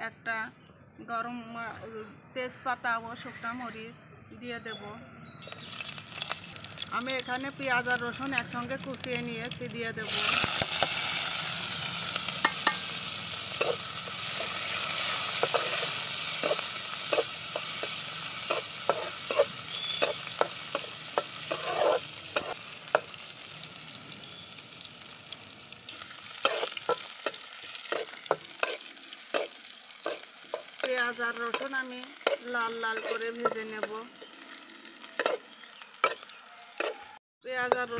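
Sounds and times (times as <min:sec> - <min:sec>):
onion sizzling in hot oil: 0:05.4 - 0:37.2
metal spatula scraping pan: 0:12.1 - 0:23.2, 0:26.2 - 0:35.4.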